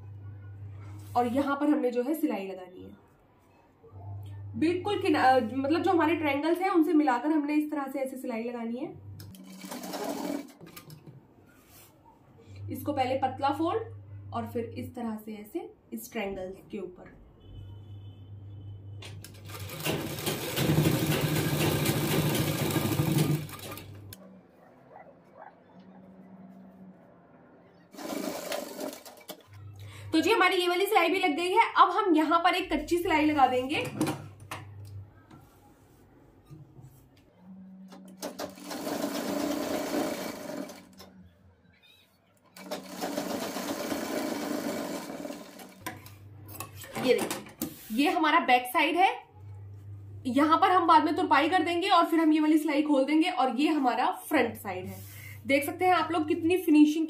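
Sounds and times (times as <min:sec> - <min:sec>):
sewing machine stitching: 0:09.3 - 0:10.9, 0:19.2 - 0:24.2, 0:27.9 - 0:29.5, 0:37.9 - 0:41.1, 0:42.5 - 0:46.1.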